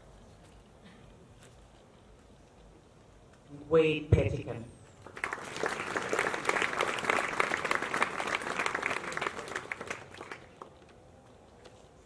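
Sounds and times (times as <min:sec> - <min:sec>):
audience applauding: 0:05.1 - 0:10.7.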